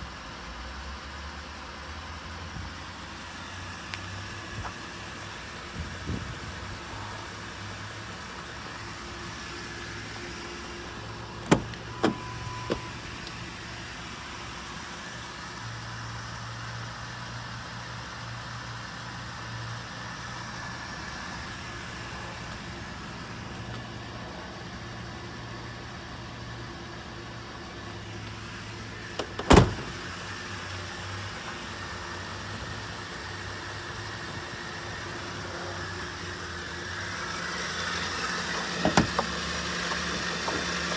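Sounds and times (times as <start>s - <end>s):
door slamming shut: 11.4s - 12.8s, 29.2s - 30.0s.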